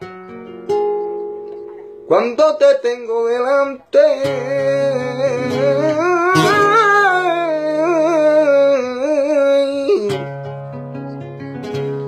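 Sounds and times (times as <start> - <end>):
acoustic guitar: 0.0 - 12.0
man singing melisma: 2.1 - 10.3.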